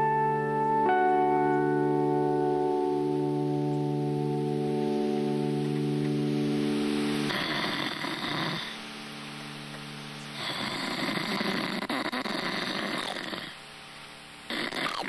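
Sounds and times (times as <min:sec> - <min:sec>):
comic snoring: 0:07.2 - 0:08.8, 0:10.4 - 0:13.6, 0:14.5 - 0:15.0.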